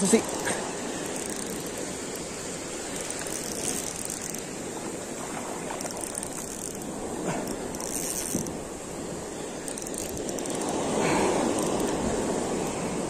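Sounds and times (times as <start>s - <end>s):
fishing reel whirring: 0.0s - 12.8s
surf breaking on shore: 0.0s - 13.0s.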